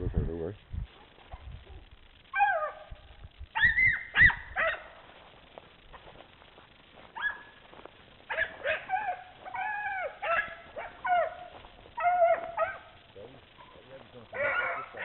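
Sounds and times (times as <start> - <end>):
dogs yelping and baying: 1.0 - 3.0, 3.6 - 5.0, 7.1 - 7.6, 8.3 - 15.0.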